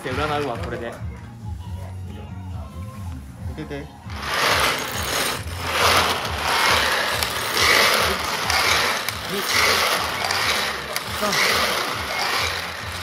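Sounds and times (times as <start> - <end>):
balls clattering in lottery drum: 4.1 - 13.0.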